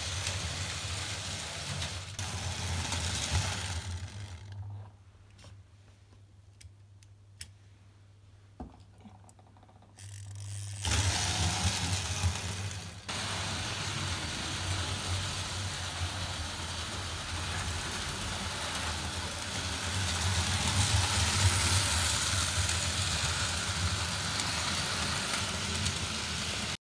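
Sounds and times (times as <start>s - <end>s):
model train motor whir: 0.0s - 4.6s, 10.0s - 26.8s.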